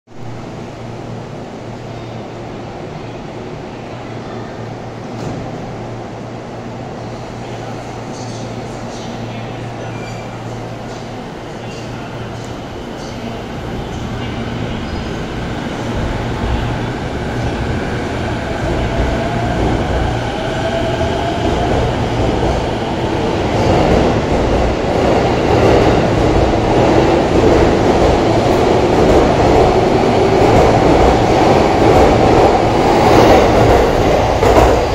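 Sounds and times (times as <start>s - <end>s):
train running rumble: 8.1s - 34.9s.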